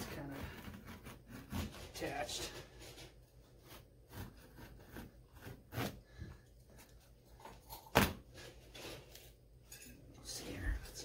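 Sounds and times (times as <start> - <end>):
knife scraping carpet: 0.0 - 7.0.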